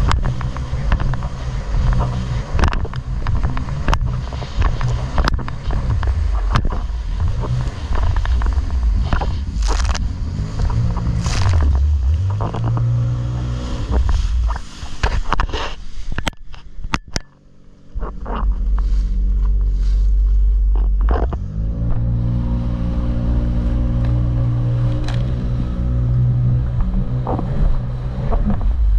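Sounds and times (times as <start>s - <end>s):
rushing spray: 0.0s - 16.2s
wind buffeting microphone: 0.0s - 16.2s
jet ski engine: 0.0s - 28.9s.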